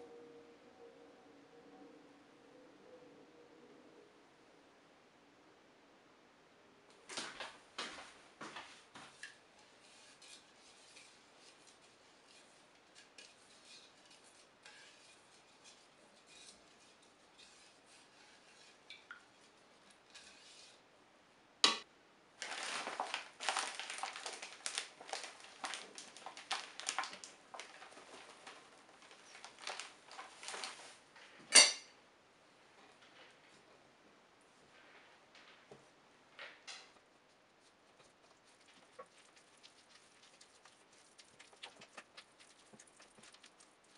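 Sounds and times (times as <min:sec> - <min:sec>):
spatula scraping plastic bowl: 0:09.1 - 0:20.8
spoon clinking in bowl: 0:31.5 - 0:31.9.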